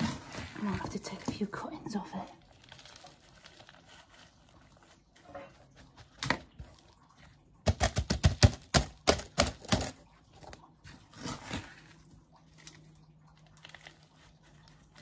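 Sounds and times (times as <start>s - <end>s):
rustle of soil and leaves: 0.0s - 6.8s.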